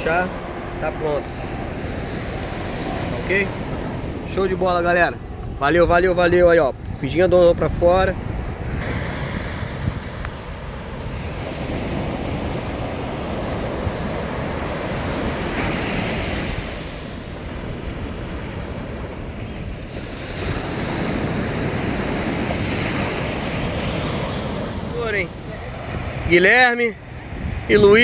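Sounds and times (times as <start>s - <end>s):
wind on microphone: 0.0s - 28.0s
surf breaking on beach: 8.6s - 26.9s.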